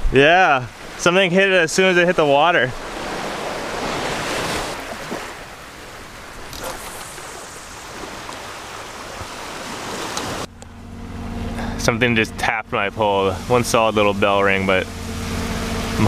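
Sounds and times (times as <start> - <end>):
surf washing onto shore: 0.0 - 10.5, 11.6 - 16.0
low hum: 5.5 - 16.0.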